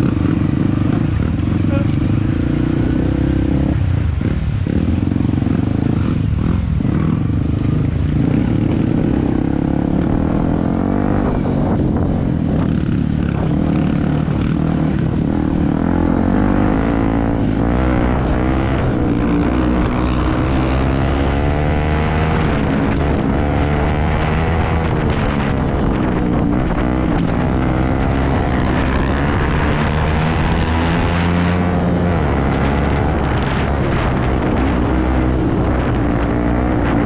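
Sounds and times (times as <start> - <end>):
motorcycle engine revving: 0.0 - 37.0.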